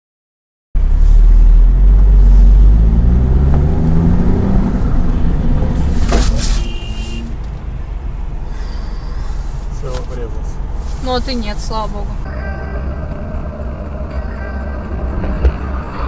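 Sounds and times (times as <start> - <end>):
car engine and road noise: 0.8 - 16.0
car crash impact: 5.8 - 7.2.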